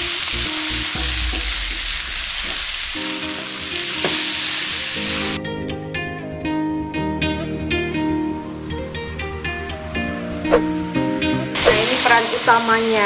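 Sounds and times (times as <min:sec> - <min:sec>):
meat sizzling in a wok: 0:00.0 - 0:05.4, 0:11.6 - 0:13.0
plucked guitar music: 0:02.9 - 0:13.0.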